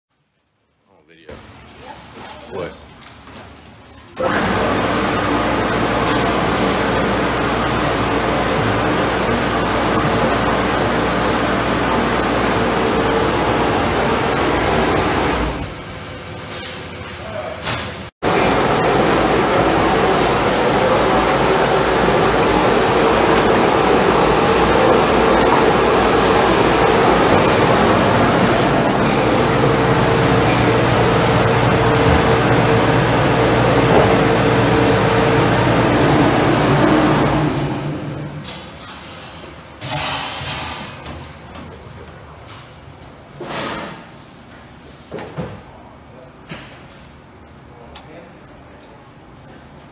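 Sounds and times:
meat grinder running: 4.2s - 15.7s, 18.2s - 38.4s.

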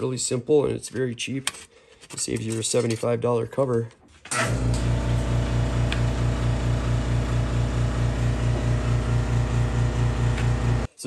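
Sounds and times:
machine humming and throbbing: 4.5s - 10.9s.

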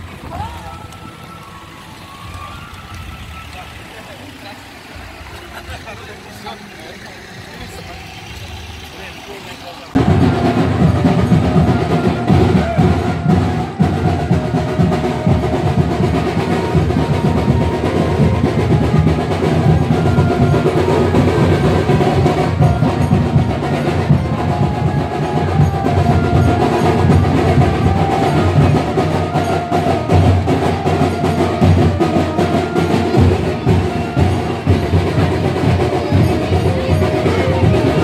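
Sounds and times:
loud festival music: 0.0s - 38.0s
fast dense drumming: 9.9s - 38.0s.

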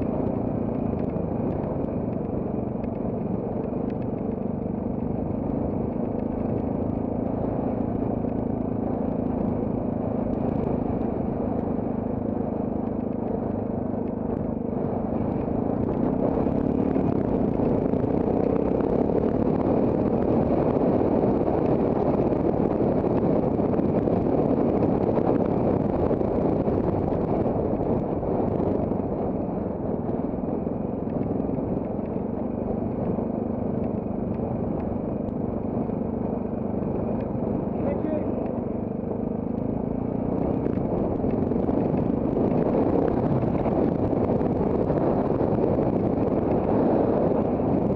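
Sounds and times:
motorcycle engine running: 0.0s - 47.9s.

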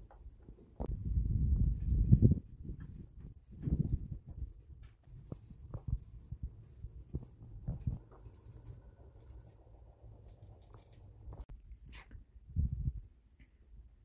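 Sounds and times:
low wind rumble: 0.0s - 11.5s, 12.3s - 13.3s.

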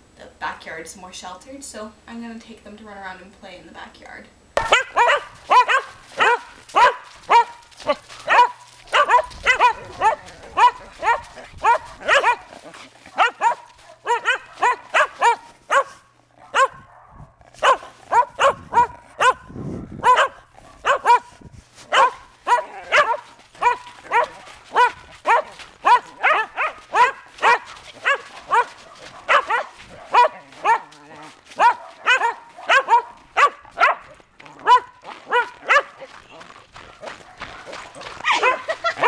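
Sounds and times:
dog barking sharply: 4.6s - 12.5s, 13.1s - 21.3s, 21.9s - 30.9s, 31.6s - 36.0s, 37.2s - 39.0s.

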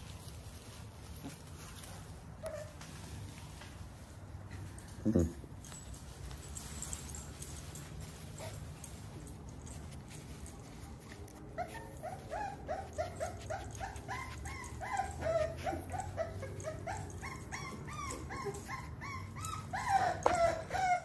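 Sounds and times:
rustling: 0.0s - 20.6s
puppy whining: 2.4s - 3.2s, 5.1s - 21.0s.

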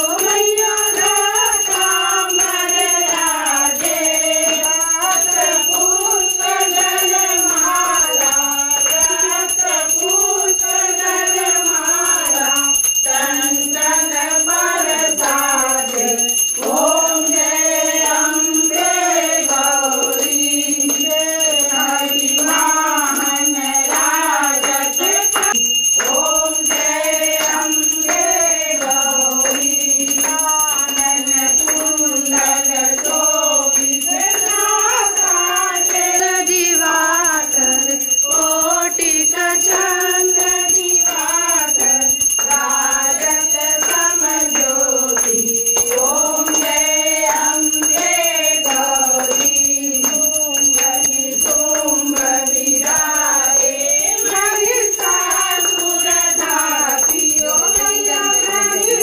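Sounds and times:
group singing devotional song: 0.0s - 59.0s
hand bell ringing: 0.0s - 59.0s.

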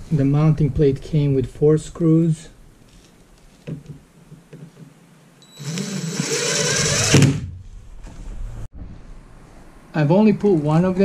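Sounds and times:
cordless drill driving screw into wood: 5.6s - 7.4s.

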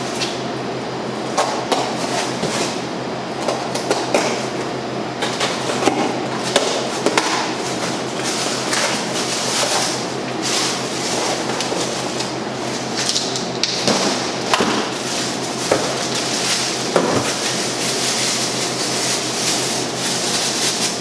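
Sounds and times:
steady low hum: 0.0s - 21.0s
cardboard packaging rustling: 5.2s - 13.1s, 13.9s - 21.0s.

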